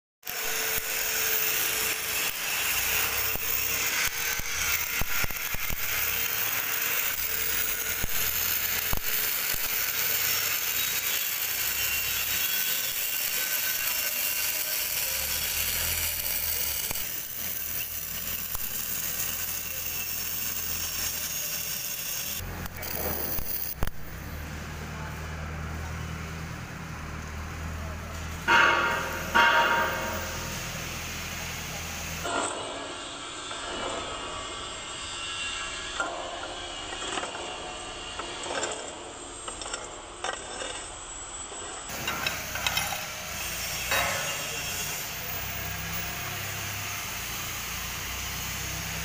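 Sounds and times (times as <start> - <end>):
welding arc crackling hiss: 0.3 - 24.4, 28.2 - 38.4, 41.0 - 49.0
welding spatter pops: 8.0 - 9.7, 22.6 - 24.1.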